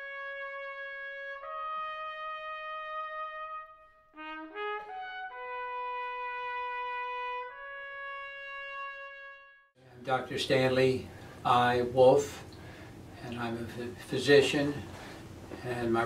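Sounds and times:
trumpet playing slow melody: 0.0s - 9.8s.

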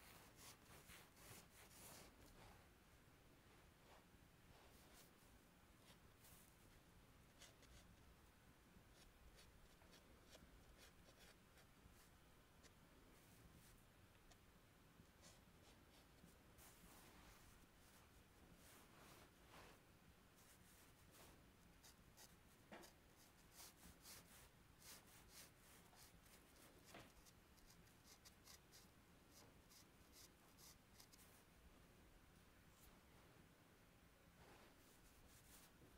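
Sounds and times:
chalk scratching on paper: 0.0s - 2.3s, 8.9s - 11.7s, 20.4s - 31.3s.

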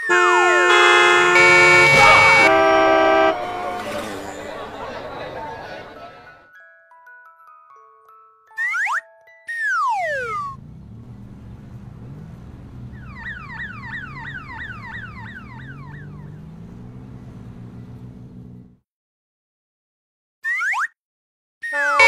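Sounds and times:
electronic siren falling tones: 0.0s - 4.8s, 9.6s - 10.6s, 12.9s - 16.4s
idling engines rumble: 0.1s - 6.3s, 10.2s - 18.8s.

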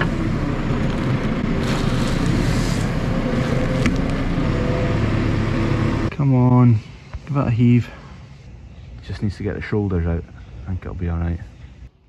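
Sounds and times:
diesel engine running: 0.0s - 8.7s.

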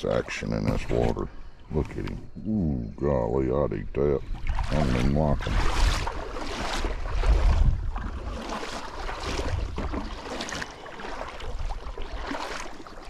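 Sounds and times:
wind buffeting microphone: 3.5s - 10.2s.

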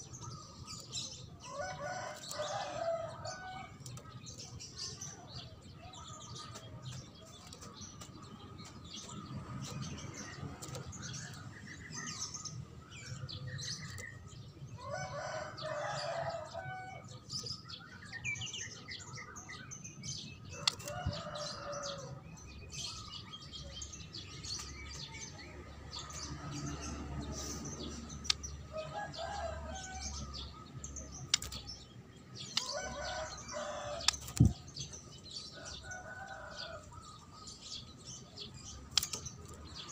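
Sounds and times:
roosters crowing: 14.8s - 17.1s, 20.5s - 22.2s, 25.9s - 30.7s, 32.4s - 37.8s.

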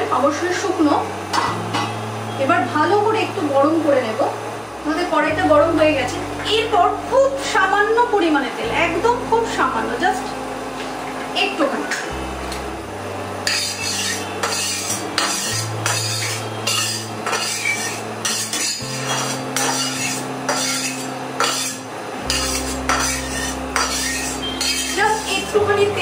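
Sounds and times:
background music: 0.0s - 26.0s
metal spatula scraping pan: 13.4s - 25.6s.

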